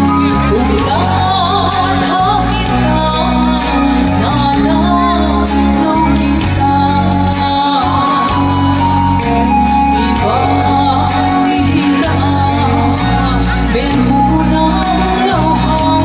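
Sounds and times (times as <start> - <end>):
instrumental backing with bass: 0.0 - 16.0
woman singing through pa: 0.0 - 16.0.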